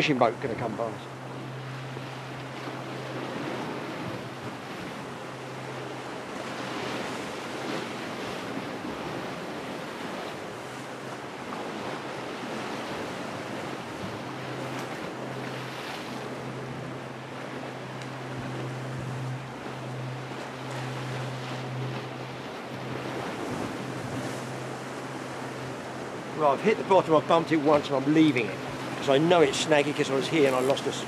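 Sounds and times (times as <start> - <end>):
motorboat engine drone: 0.0 - 31.0
surf washing on rocks: 0.0 - 31.0
wind on microphone: 2.0 - 26.4.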